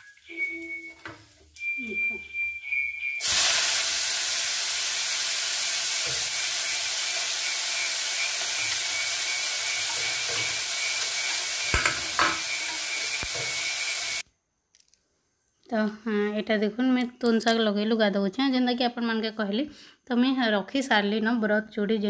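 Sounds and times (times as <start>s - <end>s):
onions sizzling in hot oil: 3.2s - 14.2s.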